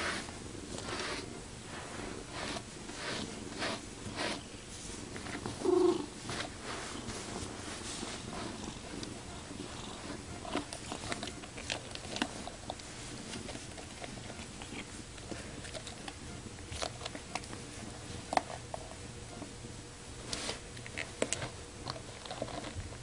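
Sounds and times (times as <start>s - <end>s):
cat purring: 5.2s - 16.4s.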